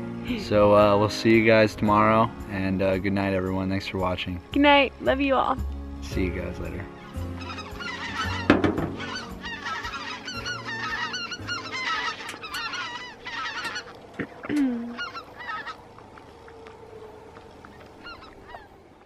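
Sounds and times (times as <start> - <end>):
flock of birds calling: 6.7 - 19.0.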